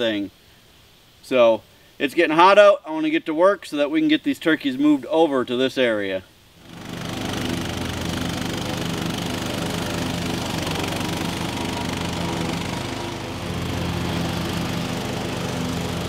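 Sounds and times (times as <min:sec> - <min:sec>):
riding lawn mower engine running: 0:06.6 - 0:16.0.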